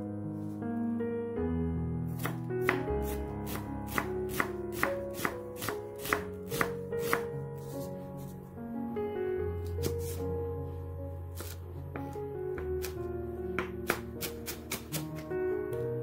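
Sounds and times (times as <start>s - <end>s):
soft piano music: 0.0s - 16.0s
knife chopping on wooden board: 2.2s - 7.8s, 9.8s - 10.2s, 11.4s - 13.0s, 13.6s - 15.3s.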